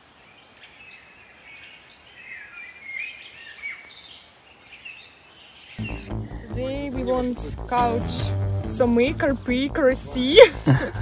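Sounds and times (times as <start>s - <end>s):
songbirds singing: 0.0s - 7.0s
faint outdoor background hiss: 0.0s - 11.0s.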